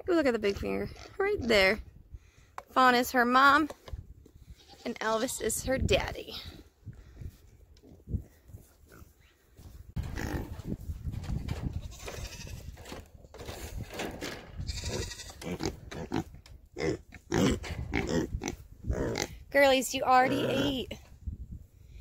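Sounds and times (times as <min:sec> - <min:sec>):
goats bleating: 0:14.7 - 0:15.6.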